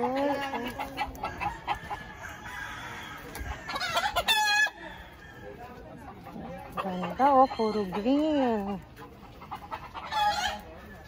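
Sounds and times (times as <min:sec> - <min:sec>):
chicken clucking: 0:00.0 - 0:11.0
rooster crowing: 0:00.2 - 0:05.8.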